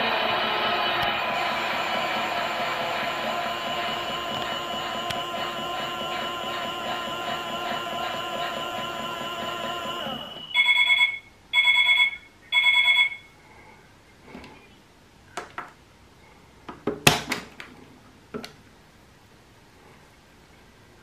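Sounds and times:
washing machine beeps: 0.0s - 13.4s.

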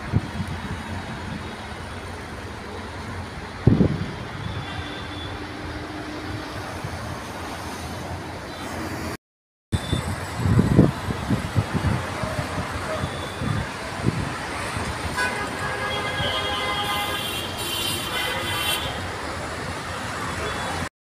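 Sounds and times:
wind buffeting microphone: 0.0s - 1.5s, 3.4s - 4.5s, 9.9s - 15.2s
road traffic rumble: 0.0s - 20.9s.

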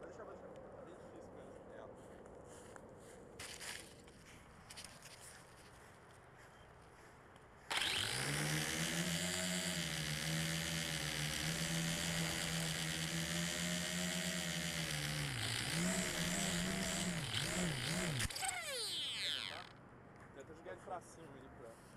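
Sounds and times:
quadcopter propellers buzzing: 7.7s - 19.7s.

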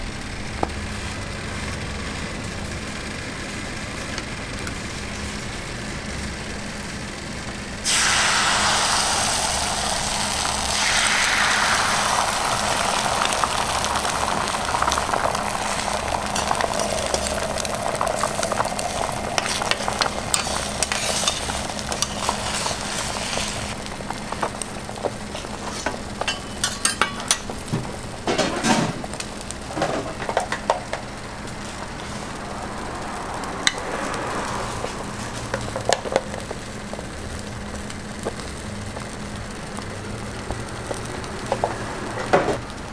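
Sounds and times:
faint steady hum: 0.0s - 29.8s
egg sizzling on hot griddle: 0.0s - 42.9s.

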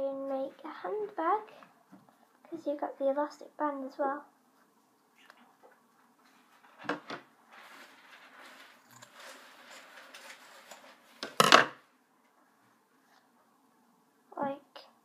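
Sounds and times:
fabric rustling: 6.1s - 11.2s.

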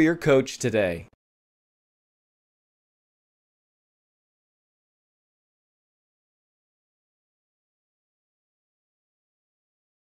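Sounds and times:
narrator speaking: 0.0s - 1.2s.

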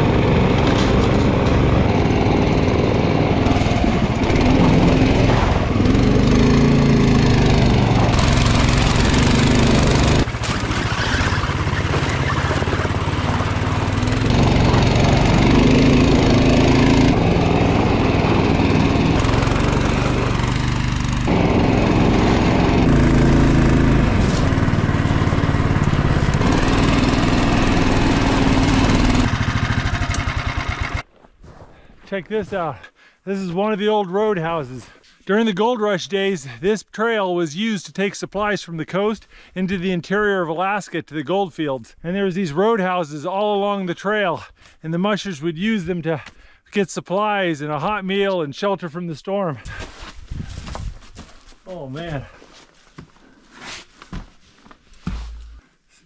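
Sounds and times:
small engine running under load: 0.0s - 31.1s.

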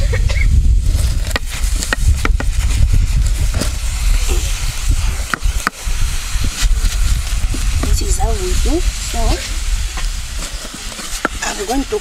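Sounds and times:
wooden spoon scraping a pot: 9.3s - 12.0s.

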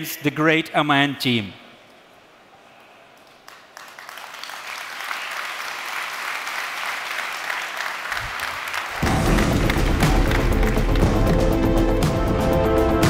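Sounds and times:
audience applause: 3.2s - 12.1s.

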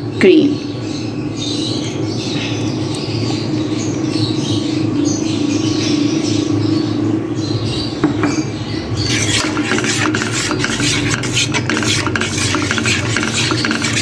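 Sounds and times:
metal spoon clinking and scraping pot: 9.0s - 14.0s.

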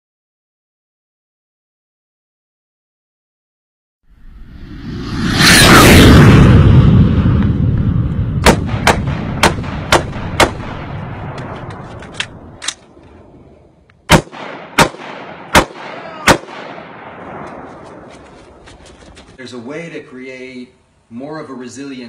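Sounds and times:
deep rumble: 4.1s - 14.0s
gunshots: 8.4s - 12.9s, 14.1s - 18.9s.

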